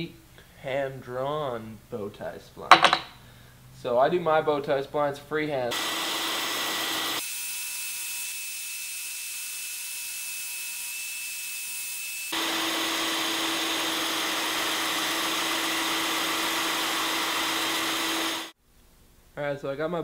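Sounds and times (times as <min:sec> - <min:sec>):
band saw cutting wood: 0:05.7 - 0:18.6.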